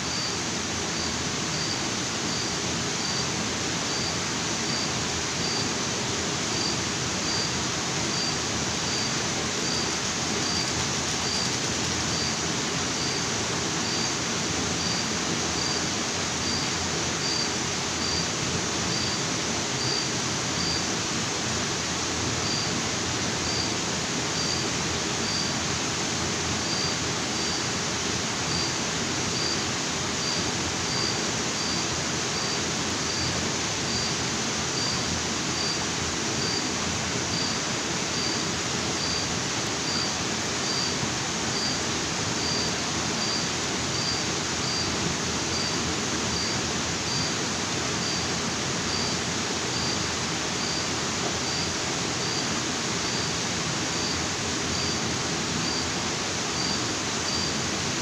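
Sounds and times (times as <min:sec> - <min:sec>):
waterfall and river rushing: 0:00.0 - 0:58.0.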